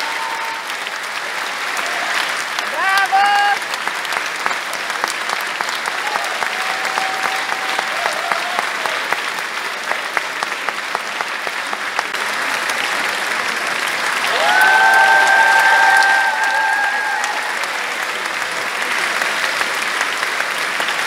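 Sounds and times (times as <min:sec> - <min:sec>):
long held cry from crowd: 0:00.0 - 0:00.9, 0:14.2 - 0:18.0
audience applauding: 0:00.0 - 0:21.0.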